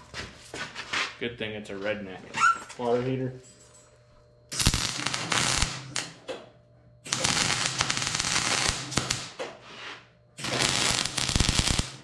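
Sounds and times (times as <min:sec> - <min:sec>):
welding arc crackling: 0:04.5 - 0:06.2, 0:07.1 - 0:09.4, 0:10.4 - 0:12.0.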